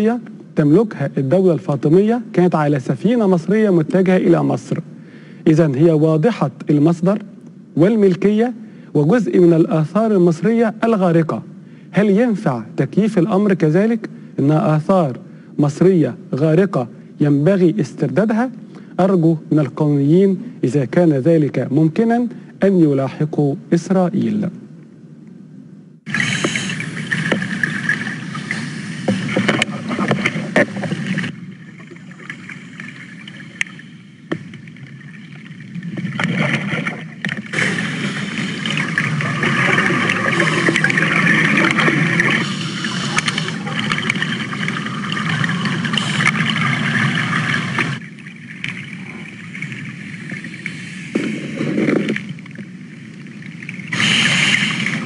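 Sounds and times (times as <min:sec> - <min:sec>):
water: 0:00.0 - 0:24.8, 0:26.0 - 0:55.0.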